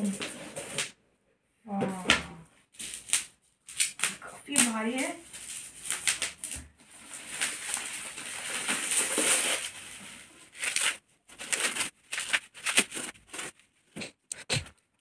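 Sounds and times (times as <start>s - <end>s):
plastic wrapping crinkling: 2.7s - 13.9s.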